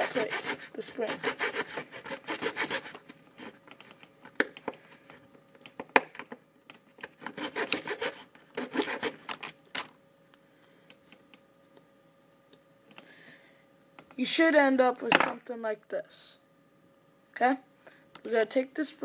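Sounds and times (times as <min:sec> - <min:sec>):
knife scraping wood: 0:00.0 - 0:03.6, 0:07.1 - 0:09.2.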